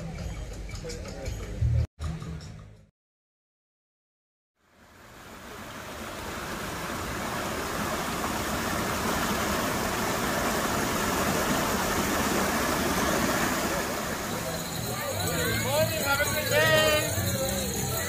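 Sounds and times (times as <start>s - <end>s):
waterfall splashing into pond: 4.6s - 16.0s.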